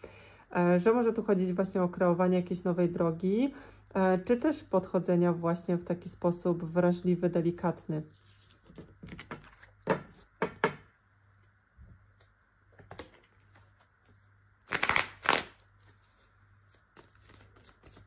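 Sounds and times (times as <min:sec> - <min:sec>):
cards being shuffled: 0:08.2 - 0:10.3, 0:11.4 - 0:18.0.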